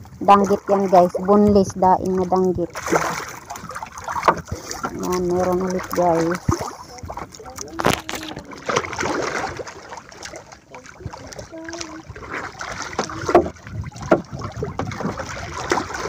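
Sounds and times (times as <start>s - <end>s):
water splashing and sloshing: 0.0s - 16.0s
sharp knocks on boat: 2.8s - 9.6s, 11.0s - 16.0s.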